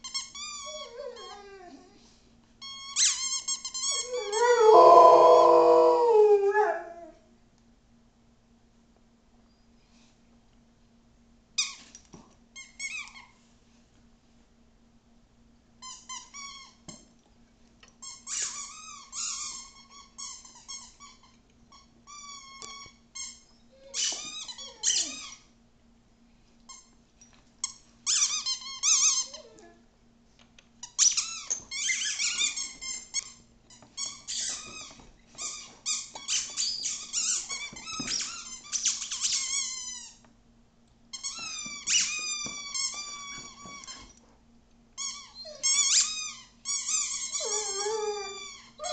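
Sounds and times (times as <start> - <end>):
squeaky dog toy squeaking: 2.6 - 4.4, 18.0 - 25.4, 27.6 - 29.7, 30.9 - 33.4, 34.0 - 40.2, 41.1 - 44.1, 45.0 - 48.9.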